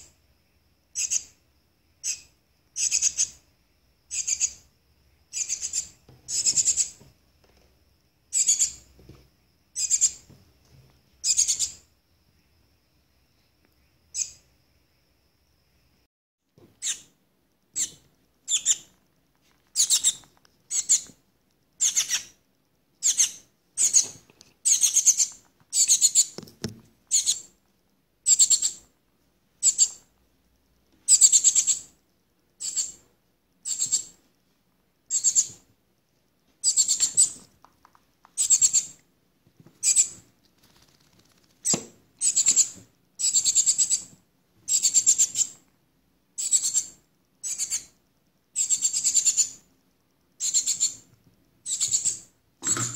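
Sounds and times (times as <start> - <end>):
fledgling begging calls: 4.1 - 4.6, 5.3 - 7.0, 17.8 - 18.9, 21.8 - 22.4.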